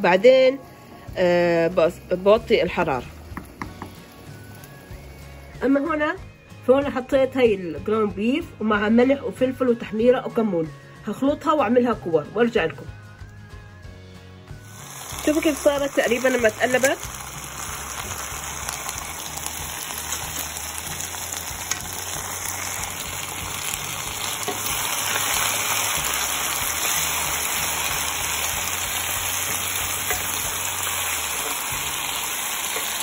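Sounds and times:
vegetables sizzling in oil: 0:00.0 - 0:05.9, 0:14.5 - 0:33.0.

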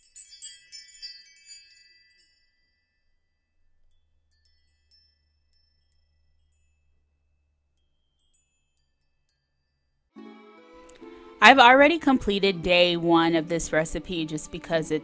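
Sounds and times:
sparkling chime tones: 0:00.0 - 0:06.9, 0:07.8 - 0:10.0.

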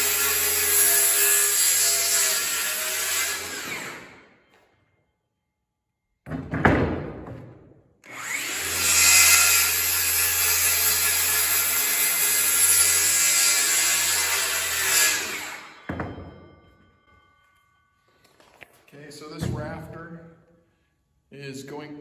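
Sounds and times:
circular saw cutting wood: 0:00.0 - 0:04.2, 0:08.0 - 0:15.9.

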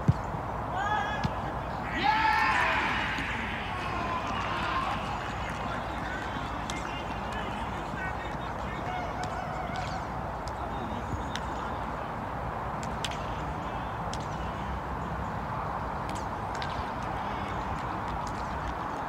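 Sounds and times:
distant players shouting: 0:00.7 - 0:11.1.

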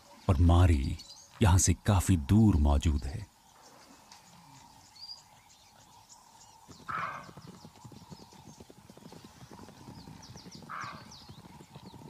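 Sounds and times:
hooves clattering on dry ground: 0:03.9 - 0:12.0.

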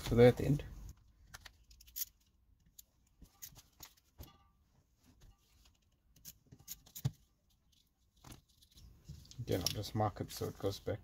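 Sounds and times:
metal parts clicking and tapping: 0:01.2 - 0:04.4, 0:05.7 - 0:09.8.

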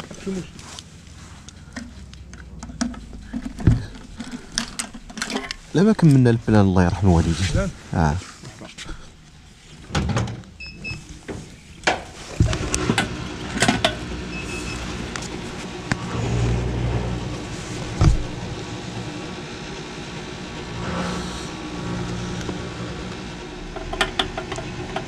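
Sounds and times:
pump motor humming: 0:01.5 - 0:05.9.

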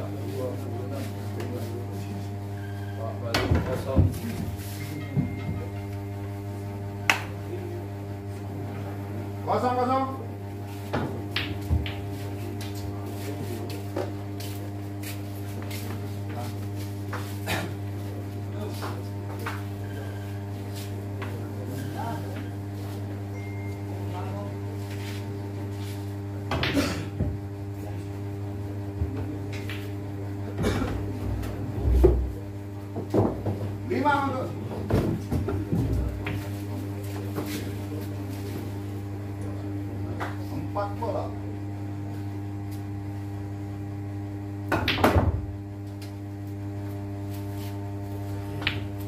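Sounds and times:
electrical hum: 0:00.0 - 0:49.0
pool cue striking ball: 0:07.0 - 0:07.5, 0:10.8 - 0:12.8, 0:26.5 - 0:27.5, 0:29.0 - 0:33.8, 0:44.6 - 0:46.6, 0:48.4 - 0:49.0
pool balls clacking: 0:11.0 - 0:12.2, 0:30.9 - 0:33.8, 0:34.6 - 0:36.6, 0:48.6 - 0:49.0.

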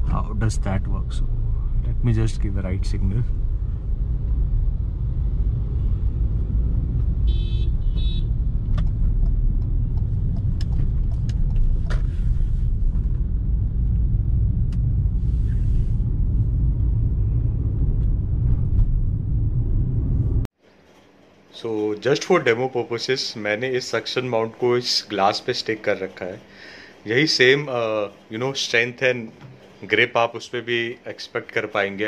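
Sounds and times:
engine and road noise: 0:00.0 - 0:20.6
car horn: 0:07.2 - 0:08.4.

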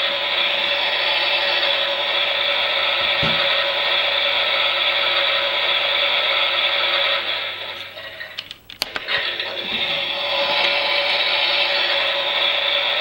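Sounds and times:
toy washing machine motor whirring: 0:00.0 - 0:13.0
sharp clicks: 0:07.8 - 0:09.1.

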